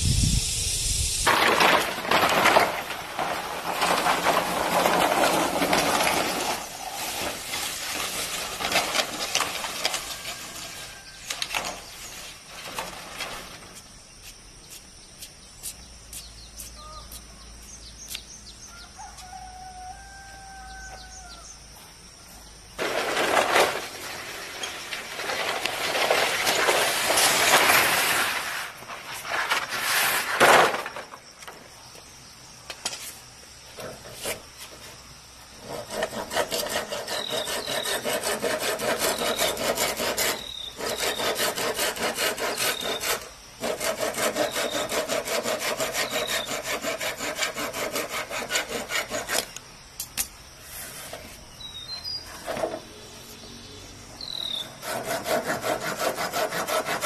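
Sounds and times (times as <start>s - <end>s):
bamboo poles clattering: 1.2s - 13.8s, 22.8s - 31.7s
bamboo poles scraping on concrete: 1.2s - 15.3s, 22.8s - 31.7s, 32.7s - 49.6s, 50.5s - 53.5s, 54.2s - 57.0s
short bird calls: 15.6s - 17.4s.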